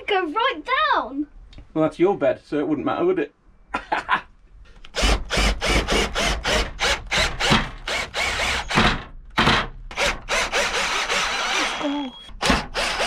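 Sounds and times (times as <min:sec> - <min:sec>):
cordless drill driving screws: 0:04.8 - 0:09.0, 0:09.9 - 0:13.0.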